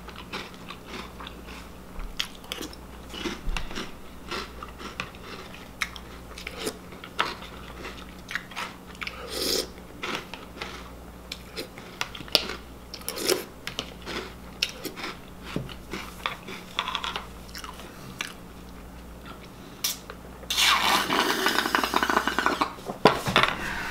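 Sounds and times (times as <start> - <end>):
crunchy cereal chewing: 0.0 - 22.8
slurping milk: 20.5 - 22.8.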